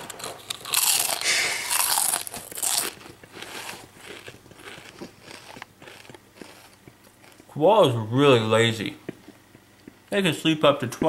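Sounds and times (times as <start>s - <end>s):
person crunching food: 0.0s - 7.6s.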